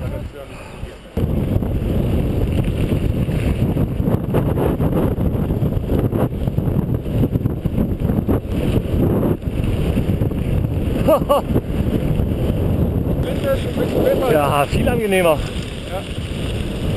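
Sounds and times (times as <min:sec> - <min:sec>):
wind buffeting microphone: 0:00.0 - 0:16.9
tyre noise on gravel: 0:05.4 - 0:16.9.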